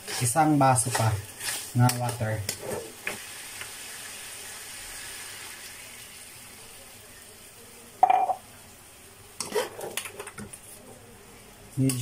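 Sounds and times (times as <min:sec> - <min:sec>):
metal spatula scraping a wok: 0:00.0 - 0:03.0
water pouring into a wok: 0:03.2 - 0:06.4.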